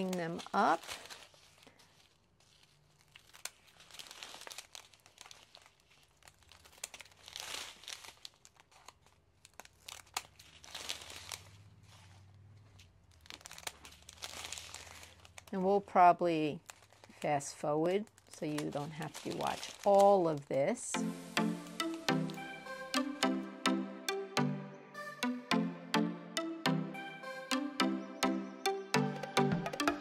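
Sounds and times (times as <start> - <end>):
plastic bags crinkling: 0.0 - 23.2.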